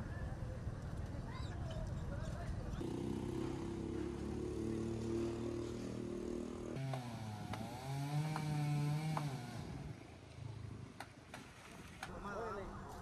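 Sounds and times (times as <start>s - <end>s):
chainsaw running: 2.8s - 10.0s.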